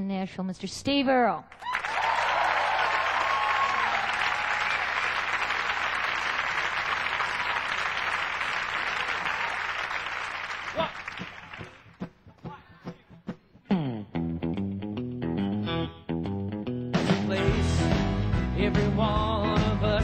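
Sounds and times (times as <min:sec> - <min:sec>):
audience applauding: 0:01.5 - 0:12.0.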